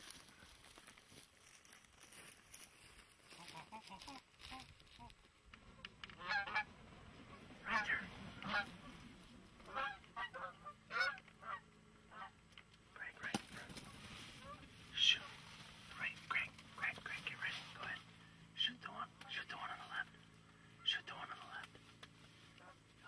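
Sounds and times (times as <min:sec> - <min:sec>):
geese honking: 0:03.3 - 0:12.4, 0:13.5 - 0:21.7, 0:22.4 - 0:23.0.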